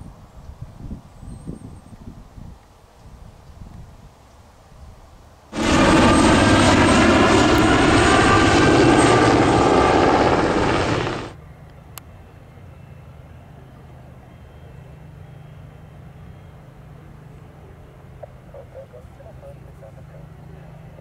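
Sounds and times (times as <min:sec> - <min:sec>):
helicopter rotor and turbine whine: 0:05.6 - 0:11.4.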